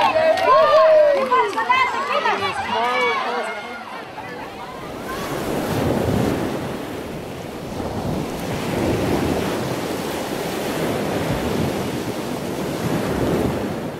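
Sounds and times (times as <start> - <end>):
surf breaking: 0.0 - 13.9
wind buffeting microphone: 3.8 - 13.9.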